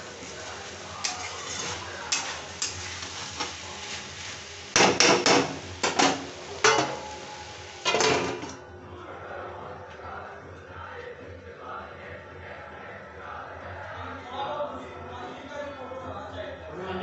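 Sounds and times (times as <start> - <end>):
metal spatula scraping a pan: 0.0 - 8.5
okra sizzling in a pan: 0.0 - 8.6
steel lid clattering: 4.8 - 7.1.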